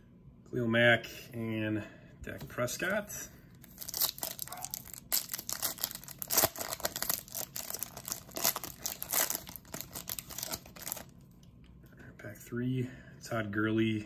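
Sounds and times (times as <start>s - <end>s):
foil wrapper tearing and crinkling: 3.6s - 11.1s.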